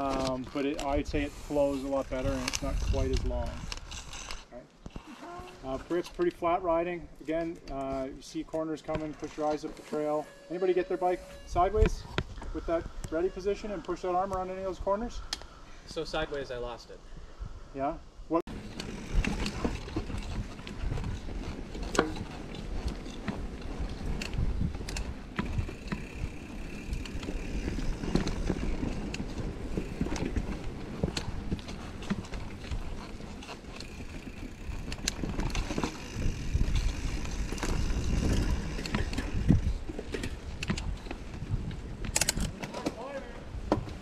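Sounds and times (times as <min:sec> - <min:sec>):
bike rattling: 0:00.0 - 0:15.1, 0:18.5 - 0:44.0
bike tyres rolling on dirt: 0:00.0 - 0:15.1, 0:18.5 - 0:44.0.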